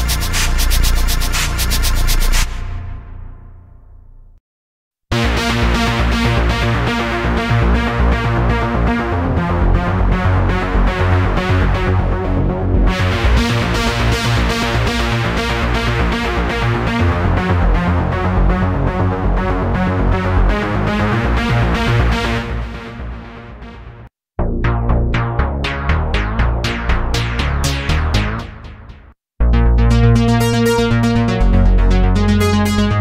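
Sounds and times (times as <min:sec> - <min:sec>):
pulsing trance synth pattern: 0:00.0 - 0:03.1, 0:25.6 - 0:33.0
deep synth bass: 0:00.0 - 0:04.4, 0:05.1 - 0:33.0.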